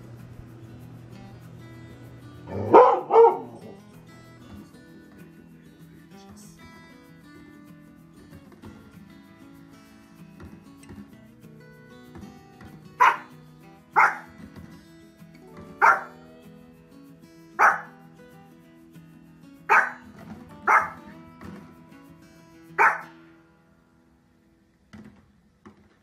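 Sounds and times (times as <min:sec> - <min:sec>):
soft background music: 0:00.0 - 0:25.9
small dog barking: 0:02.5 - 0:03.8, 0:13.0 - 0:13.3, 0:14.0 - 0:14.3, 0:15.6 - 0:16.3, 0:17.6 - 0:18.0, 0:19.7 - 0:20.1, 0:20.7 - 0:21.0, 0:22.8 - 0:23.1.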